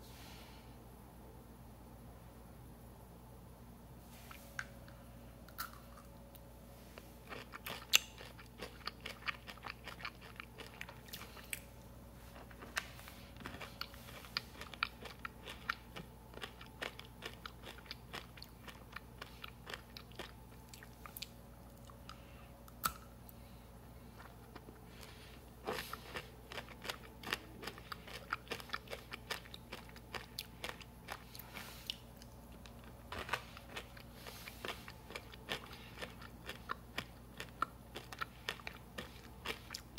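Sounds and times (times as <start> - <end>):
candy shell crunching while chewed: 7.2 - 11.7, 12.3 - 23.1, 24.2 - 39.9.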